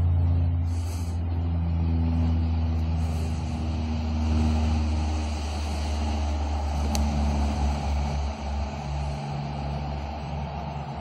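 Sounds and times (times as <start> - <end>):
low engine drone: 0.0 - 11.0.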